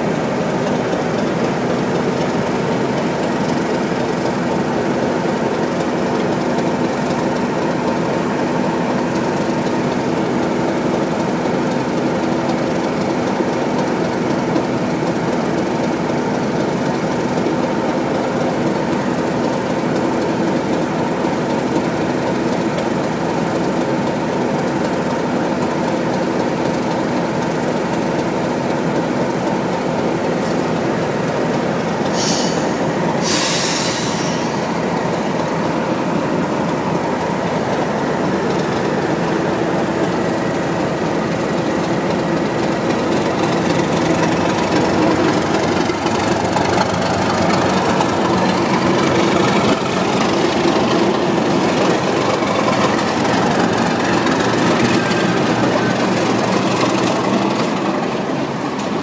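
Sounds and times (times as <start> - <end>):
diesel locomotive engine drone: 0.0 - 59.0
short hisses: 32.1 - 34.6.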